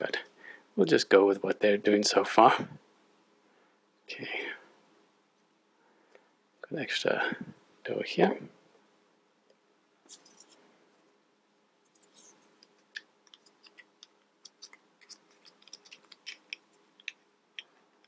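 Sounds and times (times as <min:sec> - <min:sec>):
soft rustle: 0:10.0 - 0:18.0
small plastic clicks and scrapes: 0:11.9 - 0:17.8.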